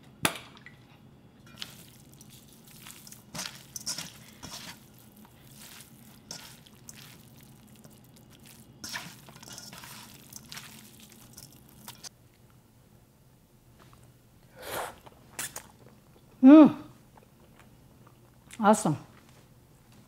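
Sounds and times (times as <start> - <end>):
hand squishing wet noodles: 1.5 - 12.1.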